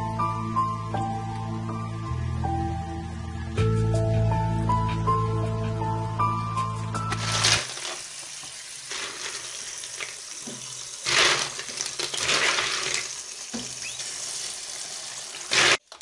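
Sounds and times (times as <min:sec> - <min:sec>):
water running and splashing: 0:07.1 - 0:16.0.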